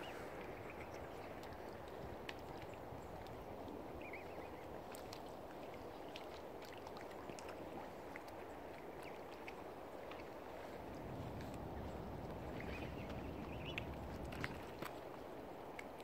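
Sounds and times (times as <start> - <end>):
small splashes: 0.0 - 16.0
water lapping on shore: 0.0 - 16.0
faint bird chirp: 4.0 - 4.7, 12.5 - 14.8.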